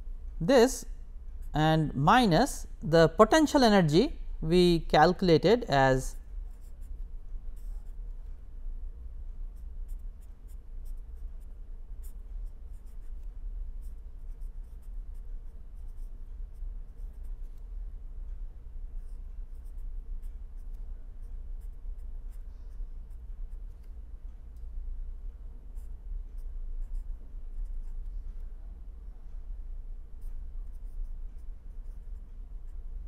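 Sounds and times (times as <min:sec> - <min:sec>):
pen scratching on paper: 0:09.6 - 0:17.6, 0:19.0 - 0:23.8, 0:25.8 - 0:28.2, 0:30.2 - 0:32.8.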